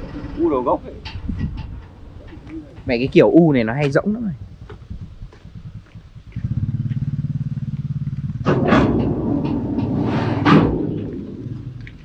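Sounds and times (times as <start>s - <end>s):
engine running with low pulse: 0.0s - 12.0s
harsh rushing noise: 8.3s - 12.0s.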